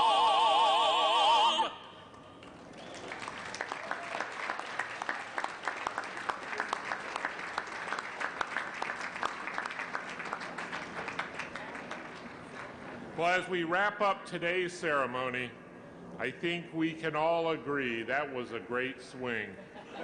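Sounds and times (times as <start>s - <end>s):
vocal group singing a chord: 0.0s - 2.0s
crowd applauding: 2.4s - 12.8s.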